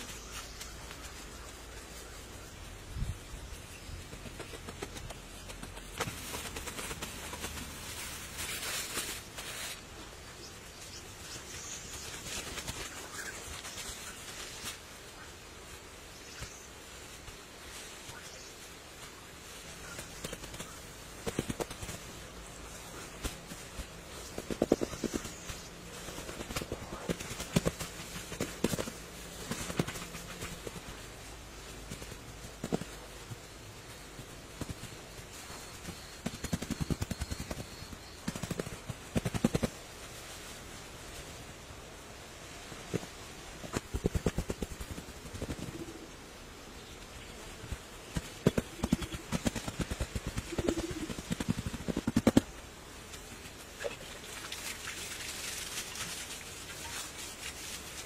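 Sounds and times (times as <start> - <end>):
grass rustling and tearing: 4.4 - 10.2, 53.6 - 58.0.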